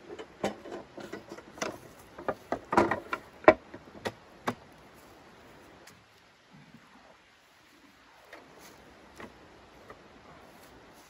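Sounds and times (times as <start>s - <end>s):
metal camp table clicks and clanks: 0.0s - 4.6s.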